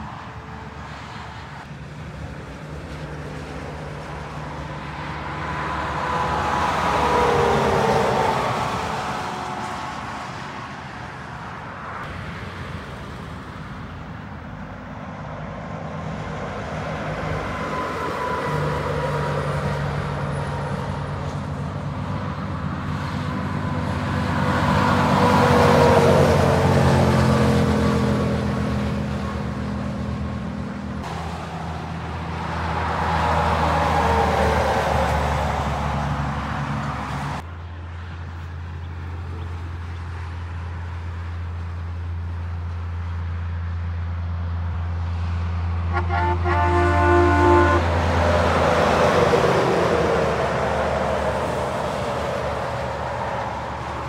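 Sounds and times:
heavy trucks passing: 0:00.0 - 0:54.0.

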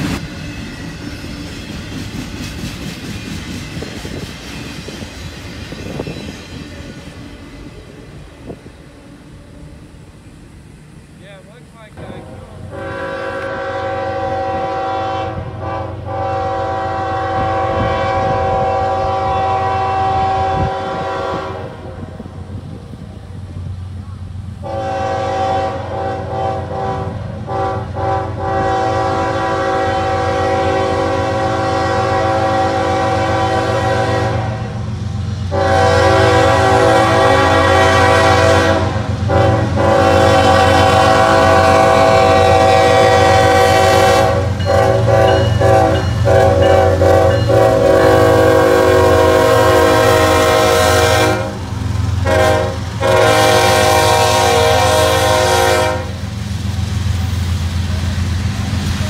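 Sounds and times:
locomotive engine rumble: 0:00.0 - 0:59.0
locomotive air horn blasts: 0:12.2 - 0:21.9, 0:24.6 - 0:34.8, 0:35.5 - 0:56.2.

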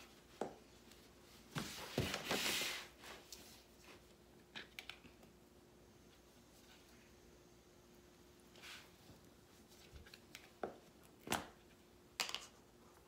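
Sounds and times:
rustling scrape: 0:01.6 - 0:04.0.

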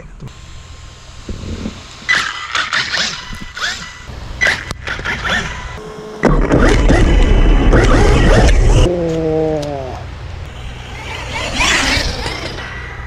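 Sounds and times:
electric motor whining: 0:10.4 - 0:13.0.

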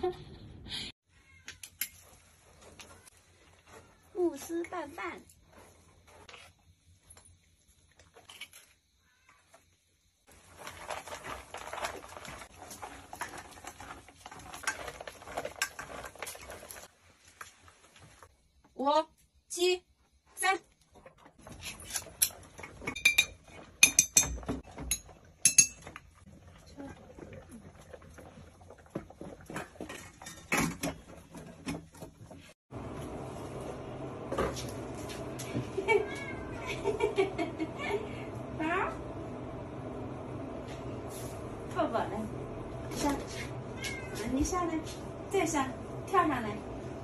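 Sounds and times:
wet food squishing: 0:10.3 - 0:18.2
metal bowls clinking and scraping: 0:10.6 - 0:16.9, 0:21.4 - 0:26.2, 0:26.8 - 0:31.7
low hum: 0:32.7 - 0:47.0.

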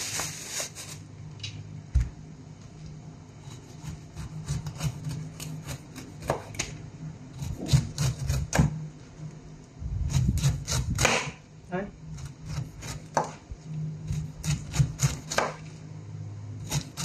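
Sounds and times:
knife cutting pineapple rind: 0:03.4 - 0:06.7, 0:07.3 - 0:08.8, 0:10.1 - 0:11.4, 0:12.1 - 0:13.4, 0:14.0 - 0:15.8, 0:16.6 - 0:17.0.

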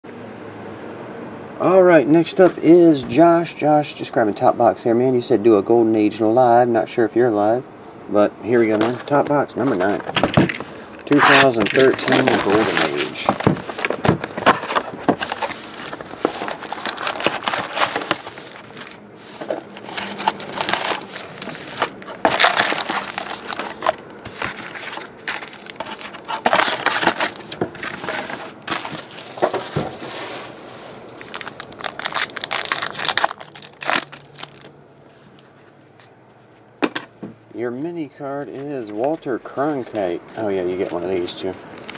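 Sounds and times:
cardboard and wrappers crinkling: 0:08.6 - 0:30.1, 0:31.2 - 0:35.6
pack wrapper tearing open: 0:11.1 - 0:13.2, 0:16.5 - 0:18.9, 0:20.0 - 0:23.9, 0:31.2 - 0:34.7.

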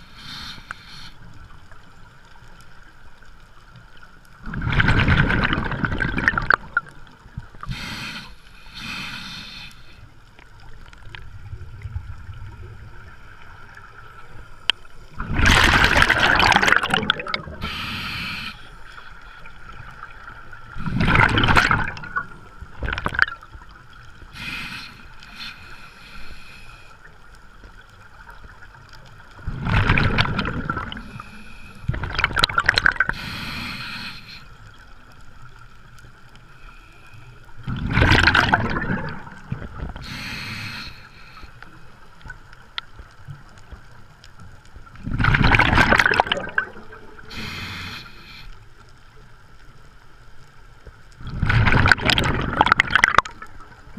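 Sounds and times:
hissing inhalations through regulator: 0:00.0 - 0:01.5, 0:07.6 - 0:10.1, 0:15.9 - 0:19.8, 0:24.2 - 0:27.2, 0:30.7 - 0:32.0, 0:32.9 - 0:34.7, 0:39.4 - 0:42.3, 0:46.1 - 0:48.7
exhaled bubbles rushing: 0:04.4 - 0:07.0, 0:15.1 - 0:17.7, 0:20.8 - 0:23.4, 0:29.4 - 0:31.1, 0:31.9 - 0:33.2, 0:37.6 - 0:40.0, 0:45.0 - 0:47.3, 0:51.2 - 0:53.6.

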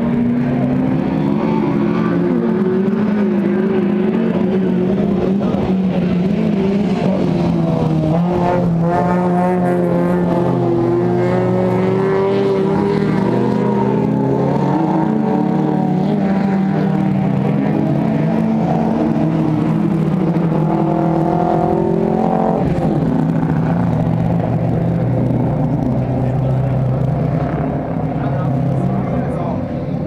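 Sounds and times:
race car engines at high revs: 0:00.0 - 0:30.0.

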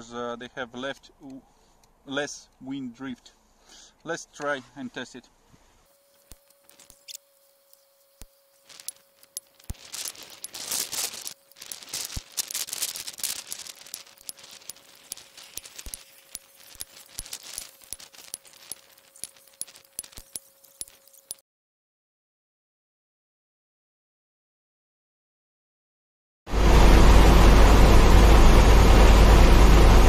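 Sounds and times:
rustling handling noise: 0:05.5 - 0:21.4.

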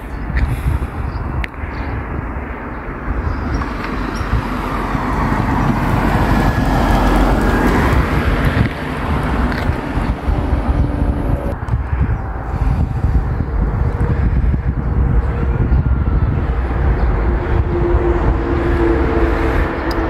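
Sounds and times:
wind rumble on microphone: 0:00.0 - 0:20.0
vehicle passing by: 0:03.5 - 0:20.0.

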